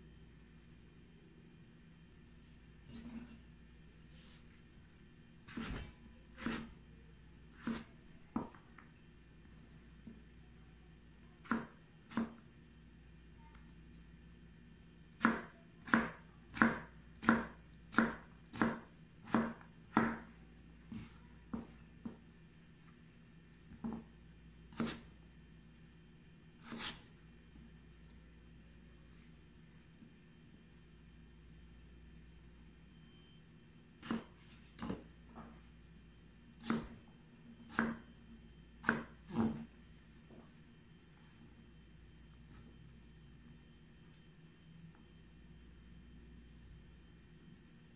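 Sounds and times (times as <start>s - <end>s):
knife chopping on plastic board: 5.5s - 6.7s, 7.6s - 8.6s, 11.4s - 12.4s, 15.2s - 20.3s, 24.7s - 25.1s, 26.6s - 27.0s, 34.0s - 35.5s, 36.6s - 38.1s, 38.8s - 39.7s.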